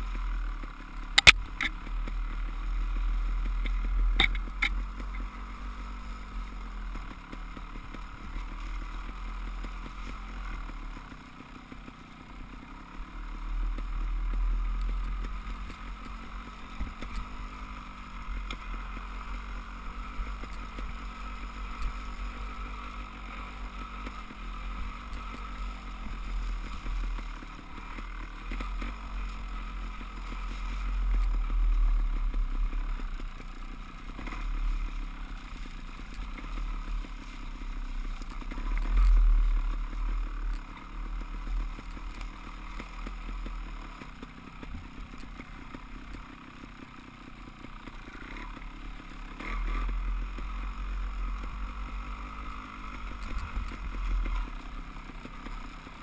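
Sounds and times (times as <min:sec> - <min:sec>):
bike rattling: 0:00.0 - 0:56.0.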